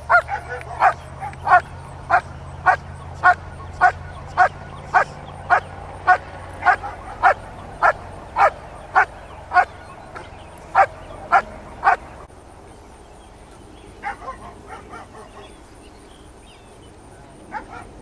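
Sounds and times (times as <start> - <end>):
dog barking: 0.1 - 12.2, 14.0 - 15.6, 17.5 - 18.0.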